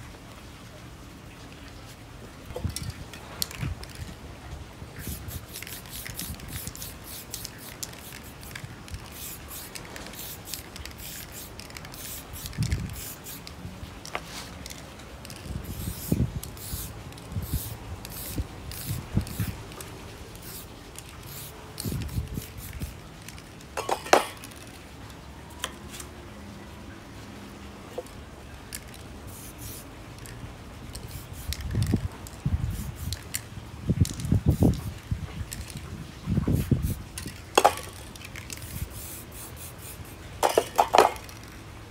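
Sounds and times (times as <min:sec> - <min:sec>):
spray paint hissing: 0:04.9 - 0:24.7, 0:28.7 - 0:30.3, 0:30.9 - 0:35.8, 0:36.4 - 0:41.6.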